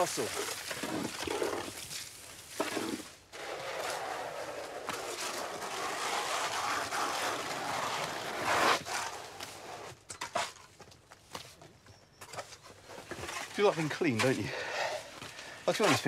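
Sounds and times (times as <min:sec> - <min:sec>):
shovels scraping sand: 0:00.0 - 0:10.7, 0:12.4 - 0:16.0.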